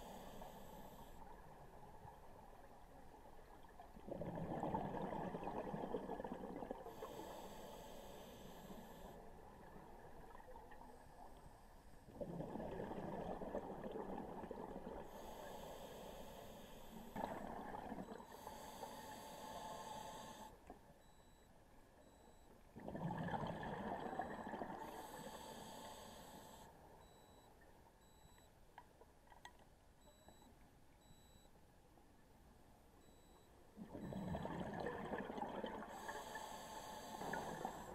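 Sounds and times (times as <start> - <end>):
bubbling exhale underwater: 4.1 - 6.8, 22.8 - 24.9, 33.9 - 36.1
regulator inhale hiss: 7.0 - 9.2, 15.1 - 17.1, 18.3 - 20.6, 24.9 - 26.7, 35.9 - 37.9.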